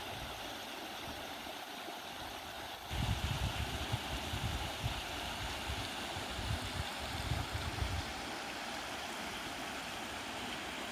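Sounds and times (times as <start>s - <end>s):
stream splashing over cascades: 0.0s - 10.9s
wind buffeting microphone: 2.9s - 8.1s.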